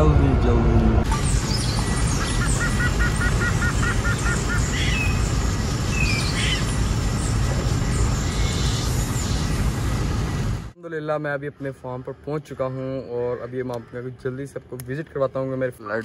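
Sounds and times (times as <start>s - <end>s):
short high bird-like calls: 1.5s - 5.2s.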